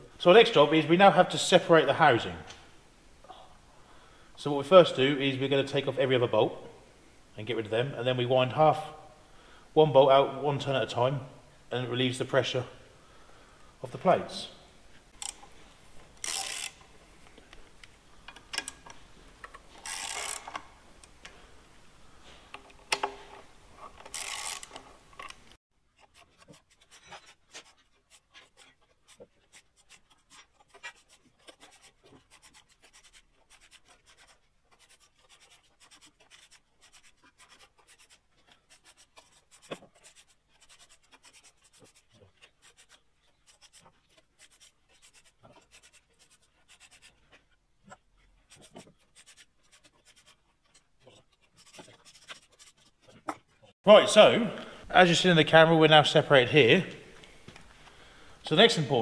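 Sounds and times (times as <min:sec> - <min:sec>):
fast light ratchet clicks: 0:16.2 - 0:16.8, 0:19.8 - 0:20.6
ratchet wrench rasping: 0:16.2 - 0:16.9, 0:19.8 - 0:20.6, 0:24.0 - 0:24.8.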